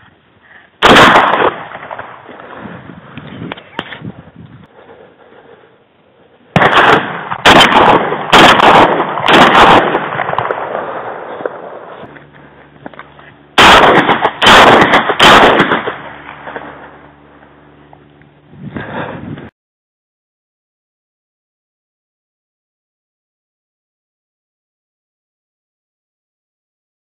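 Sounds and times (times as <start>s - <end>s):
shotgun blasts: 0.8s - 2.8s, 6.5s - 12.1s, 13.6s - 17.0s.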